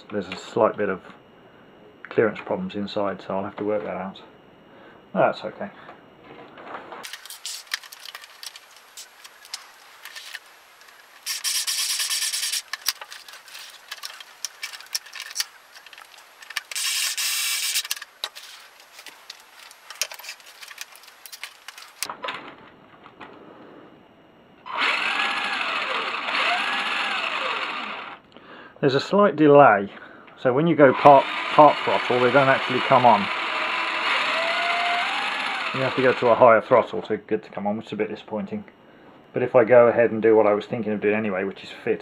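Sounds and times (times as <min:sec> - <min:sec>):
electric screwdriver running: 0:11.2 - 0:12.8, 0:16.6 - 0:18.0, 0:24.7 - 0:28.2, 0:30.9 - 0:36.4
toy truck motor whining: 0:11.2 - 0:12.8, 0:16.5 - 0:18.0, 0:24.7 - 0:28.2, 0:30.9 - 0:36.4.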